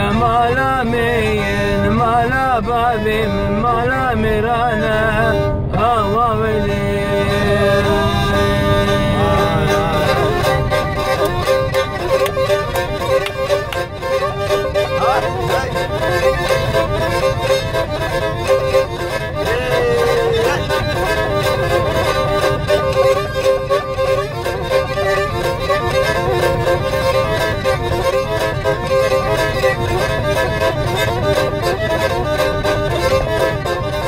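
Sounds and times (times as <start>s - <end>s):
bowed fiddle melody: 0.0s - 34.0s.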